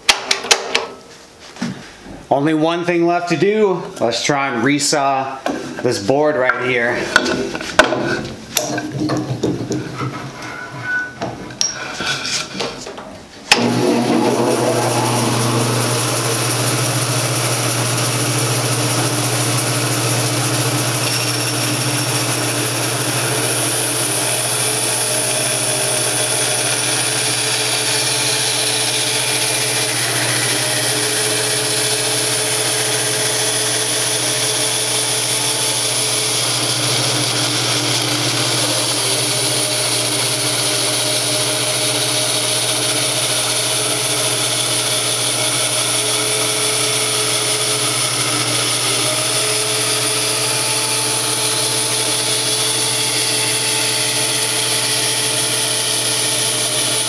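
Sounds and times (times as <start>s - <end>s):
bandsaw motor hum: 13.5s - 57.0s
saw blade cutting wood: 13.5s - 57.0s.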